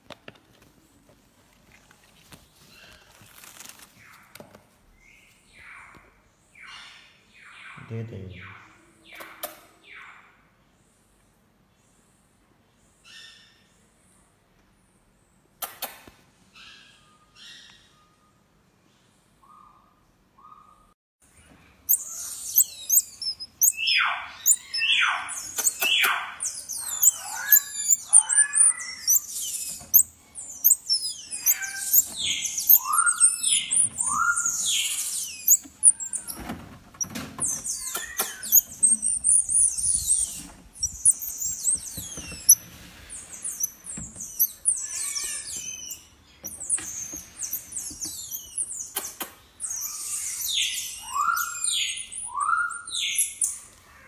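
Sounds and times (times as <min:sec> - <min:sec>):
baby marmoset chirping: 0:21.8 - 0:54.0.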